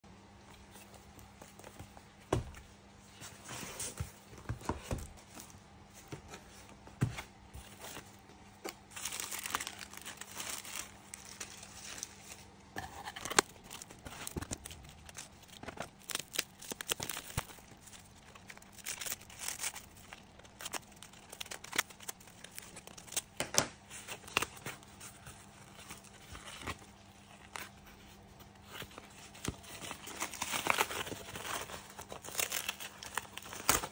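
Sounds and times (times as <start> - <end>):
paper and cardboard crinkling: 0.6 - 33.9
packing tape tearing: 13.1 - 23.3.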